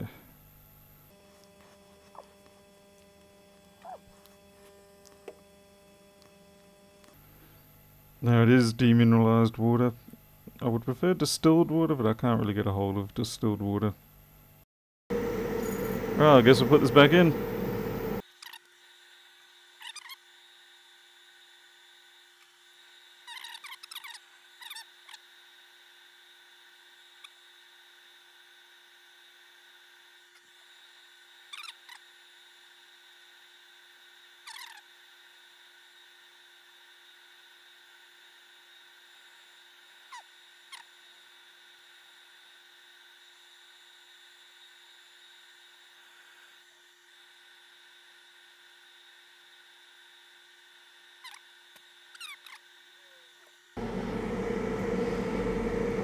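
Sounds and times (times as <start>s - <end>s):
faint electronic hum: 15.1s - 18.2s, 53.8s - 56.0s
plastic frame squeaks and clicks: 23.3s - 24.8s.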